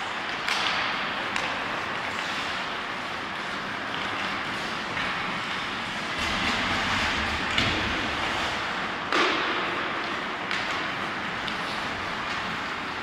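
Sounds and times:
skates scraping ice: 0.0s - 13.0s
stick and puck knocks: 0.3s - 2.2s, 9.0s - 11.6s.

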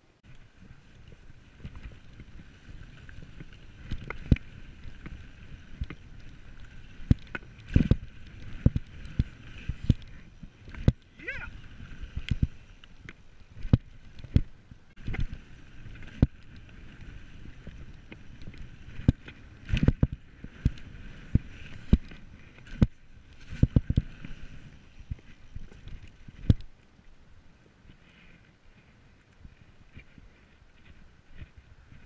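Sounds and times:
bike tyres rolling over dirt: 0.0s - 32.0s
bike knocking and rattling: 0.3s - 11.2s, 12.2s - 24.2s.

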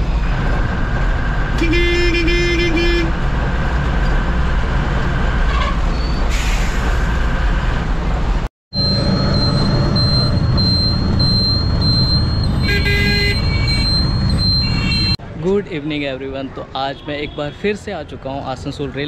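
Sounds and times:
bus engine running: 0.0s - 15.2s
road and traffic noise: 0.0s - 19.0s
horn tooting: 1.6s - 3.2s, 12.4s - 15.2s.

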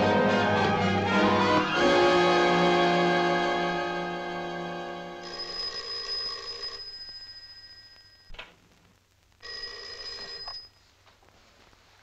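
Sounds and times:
telephone bell ringing: 5.2s - 8.3s, 9.4s - 10.9s.

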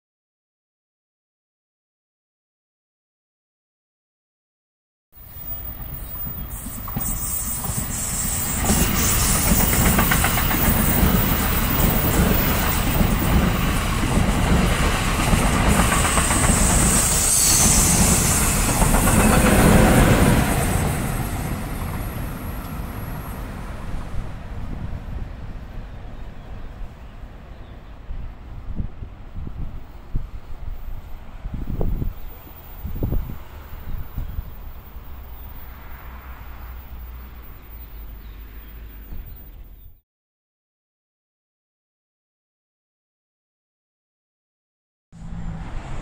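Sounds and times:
wheels clicking on rail joints: 5.4s - 17.0s
train wheels rumbling on rails: 5.4s - 27.2s.

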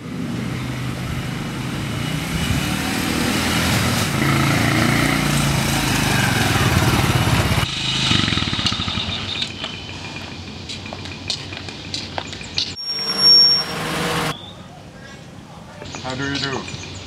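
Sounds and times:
small motorbike engine running: 4.2s - 10.3s.

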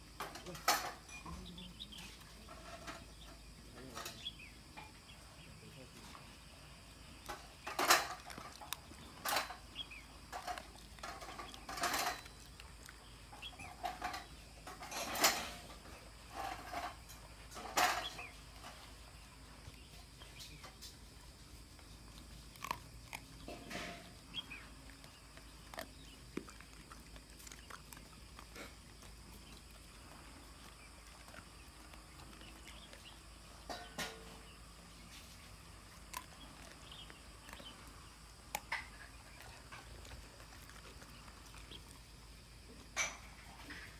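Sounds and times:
dog chewing bones: 7.2s - 14.7s, 21.6s - 34.0s, 35.1s - 43.9s.

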